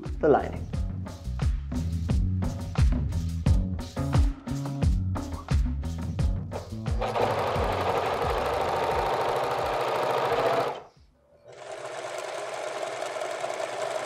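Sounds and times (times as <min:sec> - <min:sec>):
serger running: 0:07.0 - 0:10.9, 0:11.5 - 0:14.0
sewing machine running: 0:07.0 - 0:14.0.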